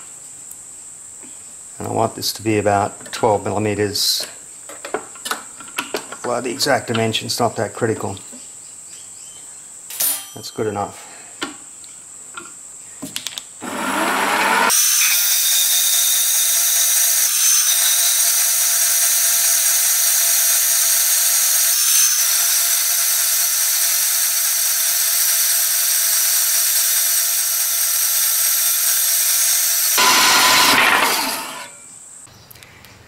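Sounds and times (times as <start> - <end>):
bandsaw cutting metal bar: 13.6 - 31.8.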